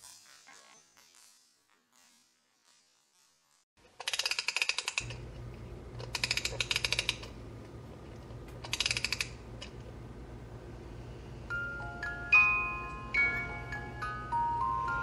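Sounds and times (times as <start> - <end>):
rapid clicking rattle: 3.9 - 7.4, 8.1 - 9.8
low steady hum: 5.0 - 15.0.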